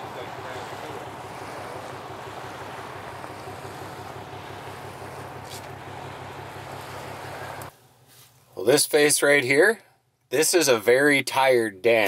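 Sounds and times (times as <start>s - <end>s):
car road noise: 0.0s - 8.0s.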